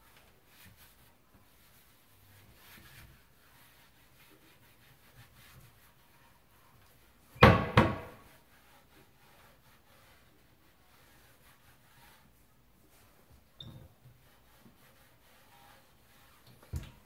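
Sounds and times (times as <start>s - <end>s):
cabinet door knocking shut: 7.4s - 8.2s.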